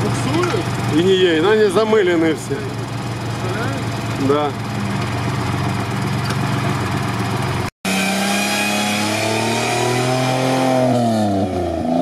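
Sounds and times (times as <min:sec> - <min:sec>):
truck engine idling and revving: 0:00.0 - 0:12.0.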